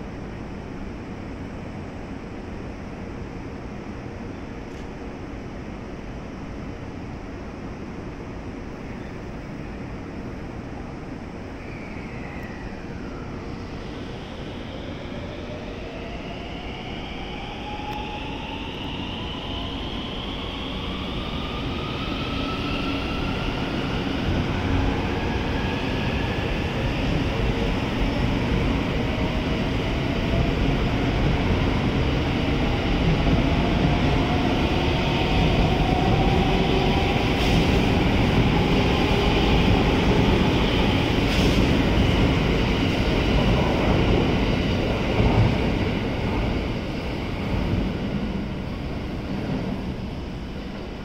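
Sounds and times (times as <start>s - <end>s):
train wheels on rails: 13.8s - 51.0s.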